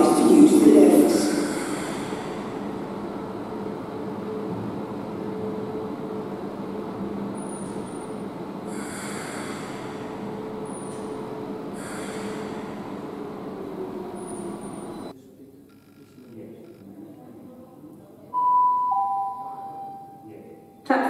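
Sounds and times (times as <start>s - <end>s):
train electrical hum: 0.0s - 21.0s
compressed air hissing: 1.2s - 3.0s, 8.7s - 15.0s.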